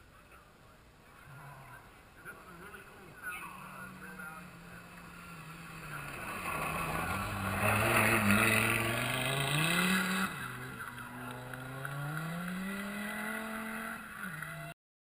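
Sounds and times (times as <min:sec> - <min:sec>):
rally car engine at full throttle: 0:03.4 - 0:14.8.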